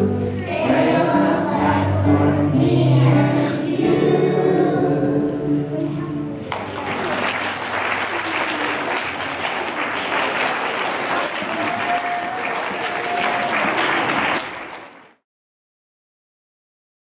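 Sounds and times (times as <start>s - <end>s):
crowd applauding: 6.5s - 15.2s.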